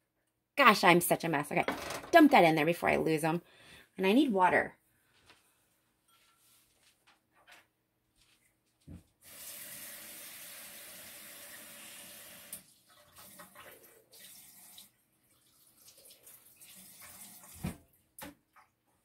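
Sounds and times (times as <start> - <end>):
kitchen tap running: 9.2 - 17.8.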